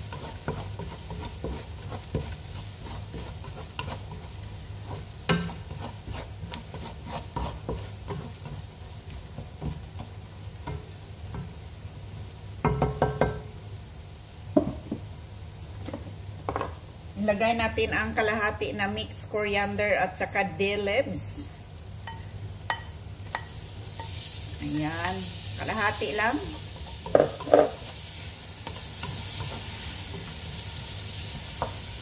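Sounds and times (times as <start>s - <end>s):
utensil scraping metal pot: 0.0s - 4.3s, 4.9s - 8.6s
onions frying in oil: 0.0s - 32.0s.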